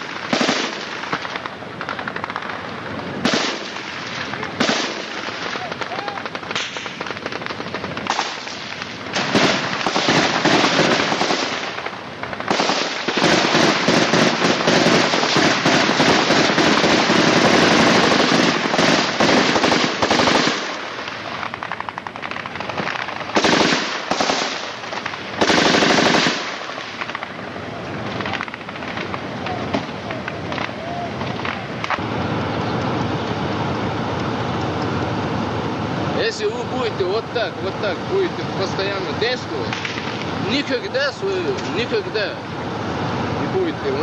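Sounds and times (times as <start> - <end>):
automatic gunfire bursts: 0.0 - 27.4.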